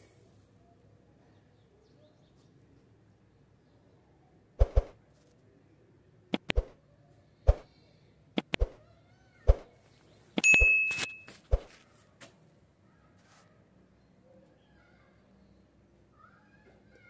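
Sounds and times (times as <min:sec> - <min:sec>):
brief metallic ring: 0:10.4 - 0:11.4.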